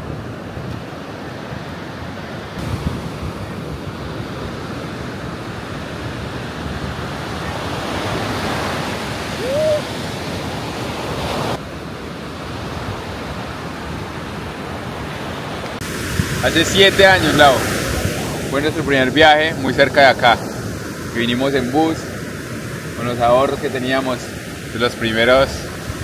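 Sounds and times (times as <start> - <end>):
surf washing onto beach: 0.0 - 26.0
wind buffeting microphone: 2.6 - 21.2, 25.3 - 26.0
brief rising call: 9.3 - 10.0.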